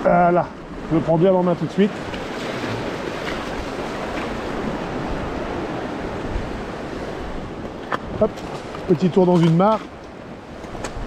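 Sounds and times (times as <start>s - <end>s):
waves washing on shore: 0.0s - 11.0s
wind on microphone: 1.9s - 11.0s.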